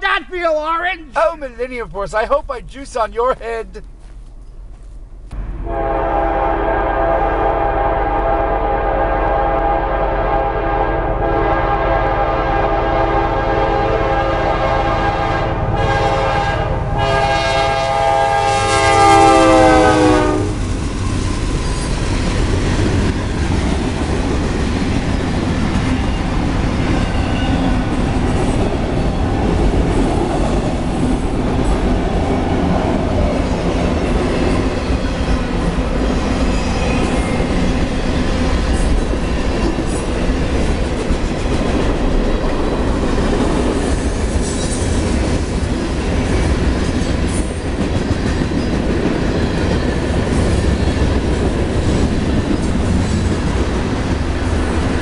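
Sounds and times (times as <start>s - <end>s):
locomotive air horn blast: 5.6s - 20.6s.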